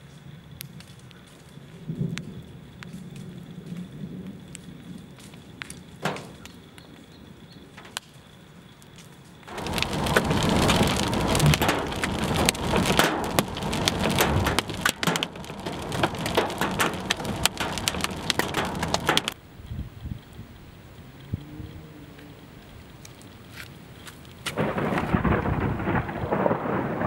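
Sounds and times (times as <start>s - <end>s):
scattered raindrops ticking: 0.0s - 27.0s
heavy rain on car roof: 9.5s - 19.4s, 24.5s - 27.0s.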